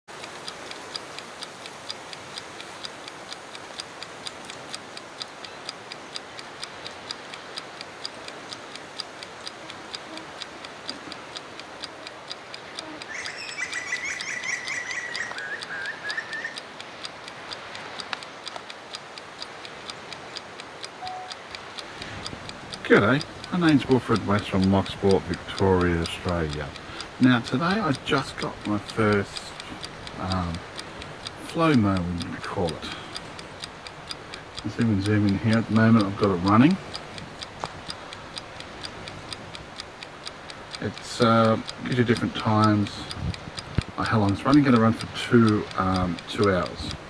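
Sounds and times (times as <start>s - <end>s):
panning head ticking: 0.0s - 47.0s
bird chirping: 13.1s - 16.6s.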